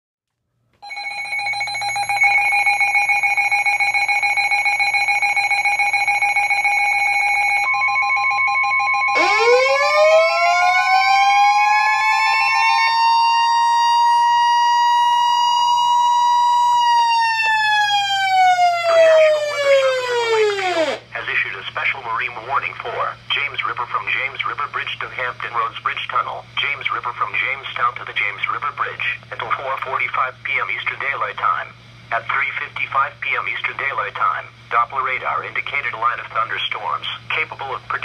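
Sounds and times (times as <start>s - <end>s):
fluttering electronic alarm tones: 0.8s - 21.0s
steady warning tone: 0.8s - 21.1s
siren-like wail: 3.9s - 21.0s.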